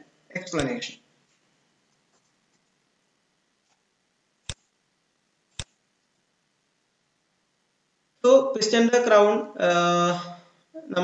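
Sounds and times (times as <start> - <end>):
room hiss: 0.0 - 11.0
computer mouse clicks: 4.4 - 4.7, 5.5 - 5.8.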